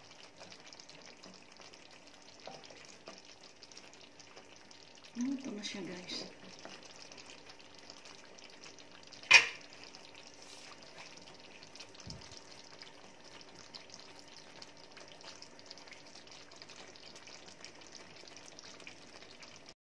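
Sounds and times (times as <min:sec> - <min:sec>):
sauce sizzling in a frying pan: 0:00.0 - 0:19.8
faint low thud: 0:12.0 - 0:12.4.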